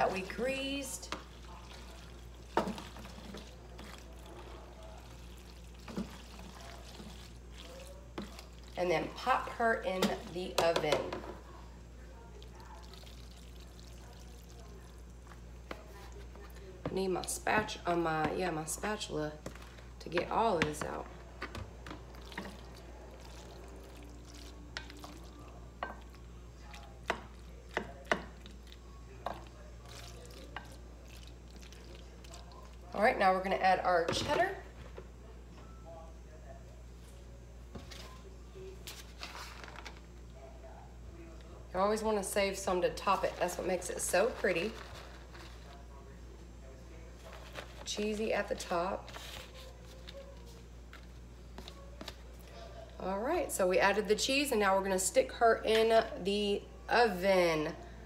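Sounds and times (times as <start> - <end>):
spoon stirring macaroni in a bowl: 0.0 - 11.4, 19.3 - 33.0.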